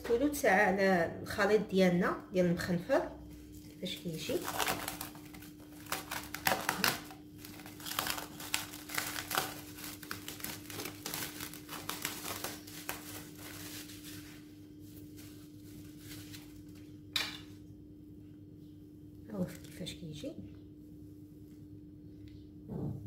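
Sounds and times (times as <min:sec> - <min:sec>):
cling film crinkling: 0:03.5 - 0:16.9.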